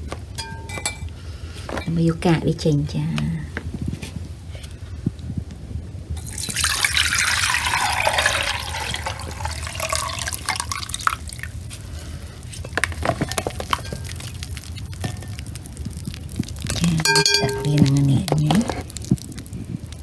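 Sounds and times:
juice pouring through metal strainer: 6.2s - 20.0s
liquid dripping: 6.2s - 20.0s.

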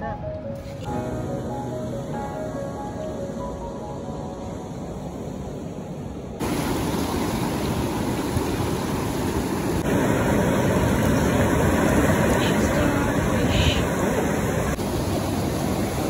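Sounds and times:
surf breaking over rocks: 6.4s - 16.0s.

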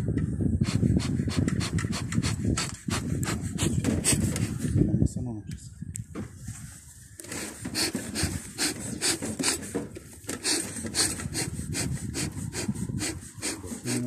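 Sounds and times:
metal tool scraping wooden frames: 7.2s - 14.0s.

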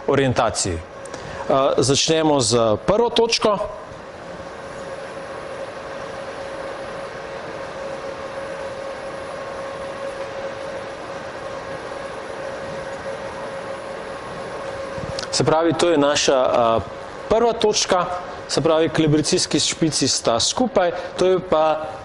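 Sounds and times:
robot arm machine hum: 3.7s - 20.6s.

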